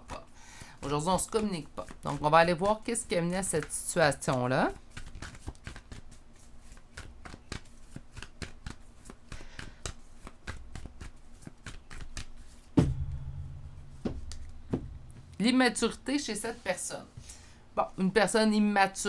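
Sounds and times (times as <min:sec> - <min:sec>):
cards being shuffled: 0:00.8 - 0:12.7
thump: 0:12.8 - 0:15.4.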